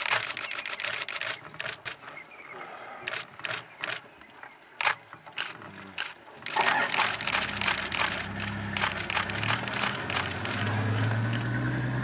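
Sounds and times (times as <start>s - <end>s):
camera shutter clicks: 0.0s - 2.0s, 4.8s - 11.6s
crackling and crunching noise: 0.0s - 11.6s
low engine hum: 0.0s - 12.0s.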